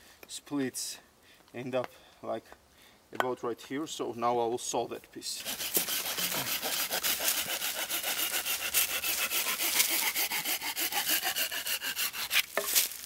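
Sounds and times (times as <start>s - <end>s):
hand saw cutting wood: 5.4s - 12.9s.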